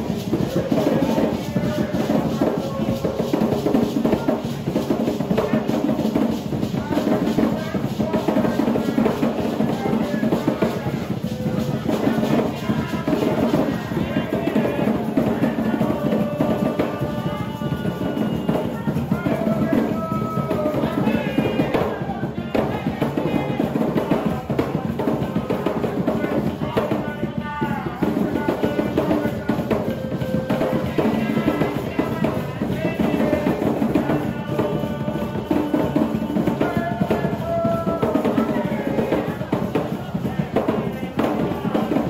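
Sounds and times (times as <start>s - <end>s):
hand drums fast dance rhythm: 0.0s - 42.0s.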